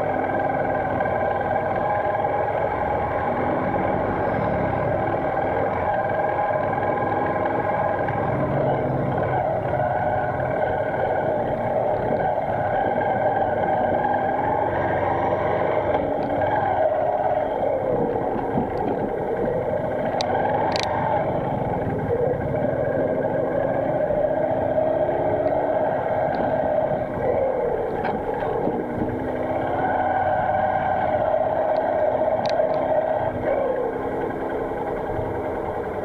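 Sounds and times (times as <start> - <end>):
small motorcycle engine running: 0.0 - 36.0
sharp clicks: 20.1 - 20.9.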